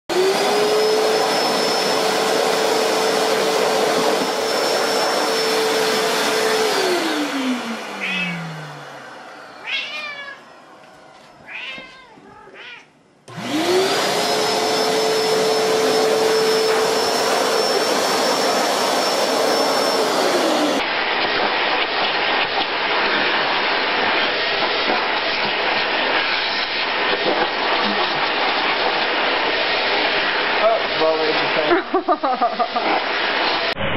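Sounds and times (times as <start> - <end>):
vacuum cleaner running: 0.1 - 11.8, 13.3 - 33.9
cat meowing: 8.0 - 8.8, 9.5 - 10.6, 11.4 - 13.0.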